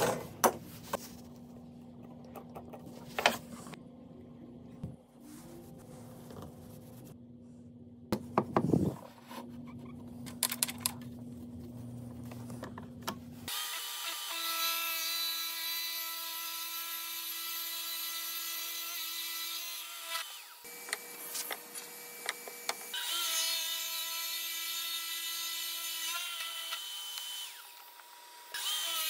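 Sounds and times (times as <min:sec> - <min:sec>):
workshop handling sounds: 0:00.0 - 0:01.3.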